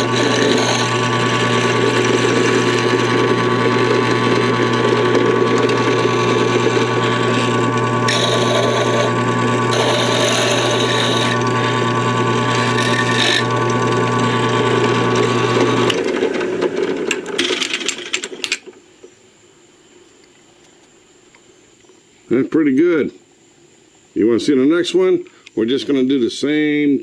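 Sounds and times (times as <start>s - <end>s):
end mill cutting metal: 0.0s - 17.6s
drill press motor running: 0.0s - 18.2s
clicks and rattles: 17.1s - 18.8s.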